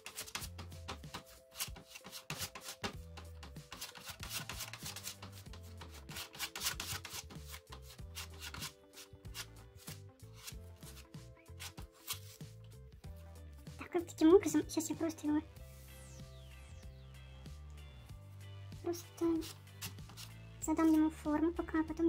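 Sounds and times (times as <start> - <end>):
palette knife scraping plaster: 0.0 - 12.6, 19.3 - 21.0
quiet background music: 0.0 - 22.0.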